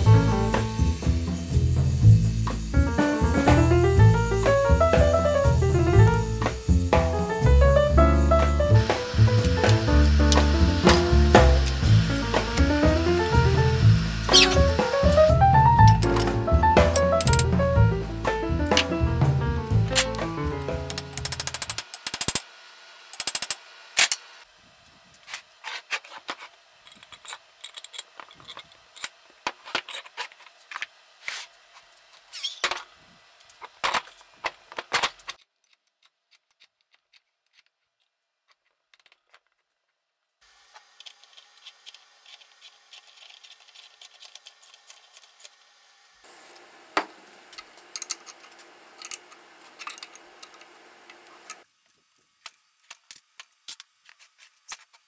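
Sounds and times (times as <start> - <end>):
metal tools clinking on vise: 49.0 - 50.2.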